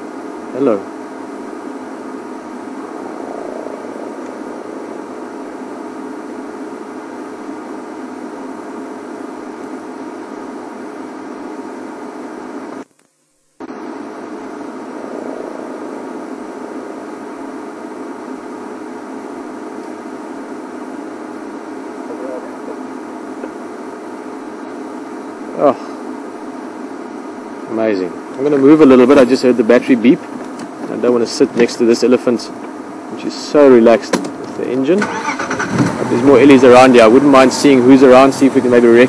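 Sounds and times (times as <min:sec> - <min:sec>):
vehicle engine idling: 0:35.0 - 0:39.0.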